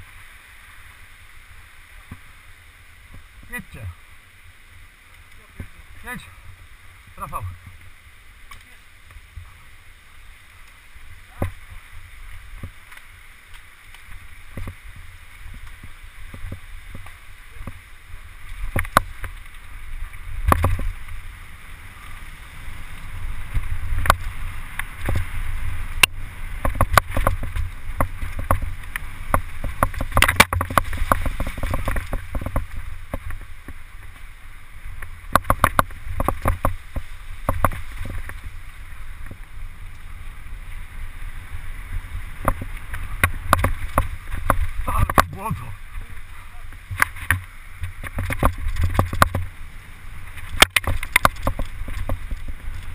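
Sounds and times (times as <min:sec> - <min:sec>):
tyres on dirt: 0:01.9 - 0:52.9
wind on microphone: 0:14.1 - 0:52.9
bike clacking and rattling: 0:26.0 - 0:34.2, 0:35.0 - 0:38.4.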